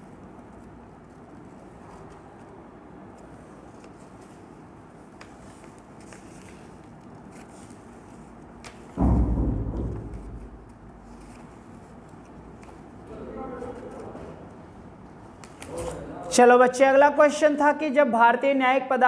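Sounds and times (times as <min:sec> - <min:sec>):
low room hum: 0:00.0 - 0:18.0
heavy thump: 0:09.0 - 0:11.6.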